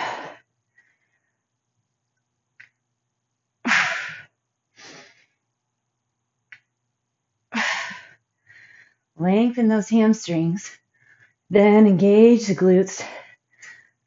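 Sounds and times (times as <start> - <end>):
woman breathing hard: 0.0 - 1.5, 3.6 - 5.4, 7.5 - 9.2.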